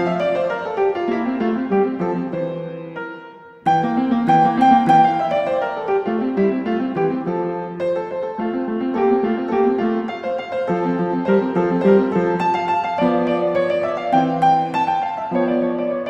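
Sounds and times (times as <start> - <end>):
piano music: 0.0 - 16.0.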